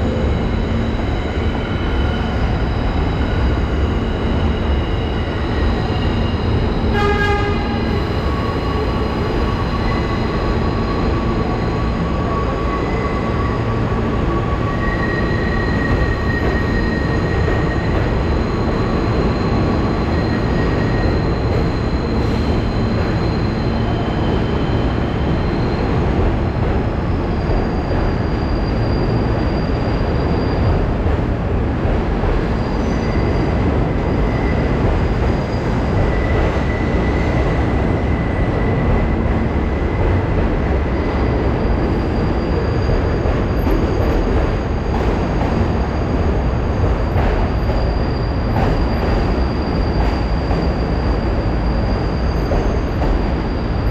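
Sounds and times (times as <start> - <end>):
rail vehicle rumbling: 0.0 - 53.9
high-pitched wheel squeals: 47.4 - 53.9.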